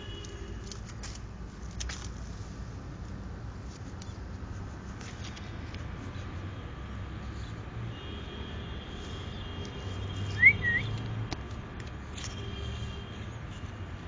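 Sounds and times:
camera handling rumble among leaves: 0.4 - 2.7
bird whistled call: 10.3 - 11.0.

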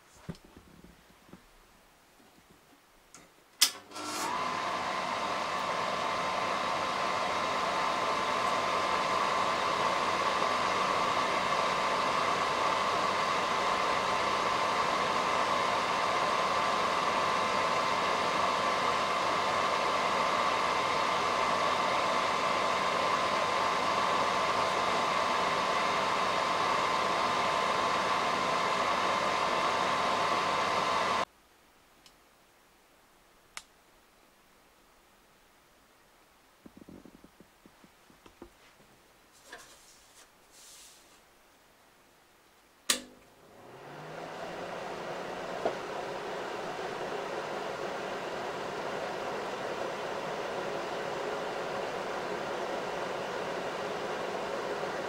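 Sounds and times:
projector fan whirring: 3.1 - 31.3, 42.7 - 55.0
projector switch click: 3.6 - 4.2, 42.9 - 43.2.

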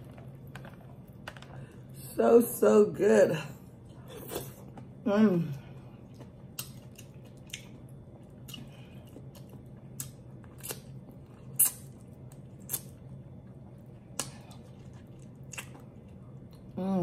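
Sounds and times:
squishy chewing: 6.0 - 16.8.

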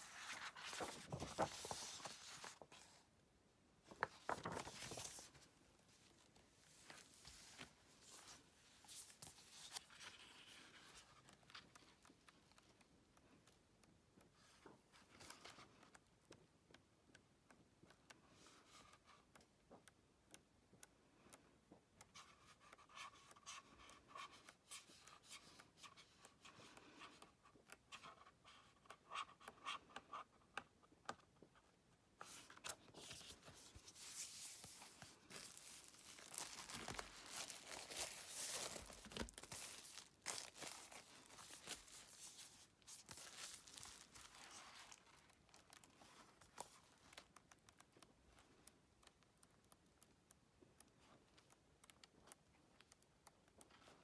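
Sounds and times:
paper rustling: 0.0 - 3.0, 3.9 - 11.7, 32.2 - 47.3.

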